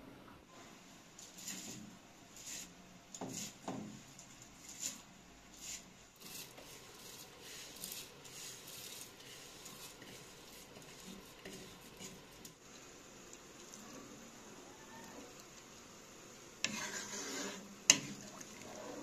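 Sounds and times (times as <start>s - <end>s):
wooden spoon scraping bowl: 1.2s - 3.8s, 4.6s - 12.6s, 16.6s - 19.0s.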